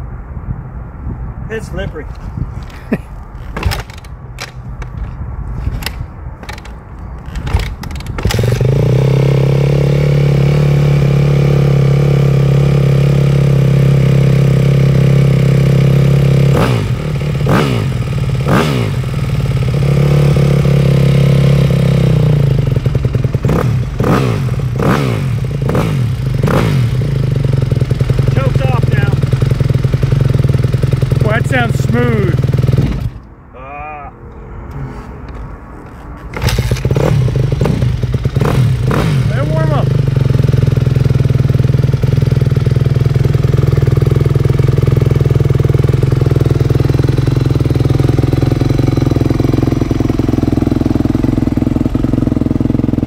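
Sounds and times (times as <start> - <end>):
dirt bike engine idling and revving: 2.1 - 33.3, 35.6 - 53.0.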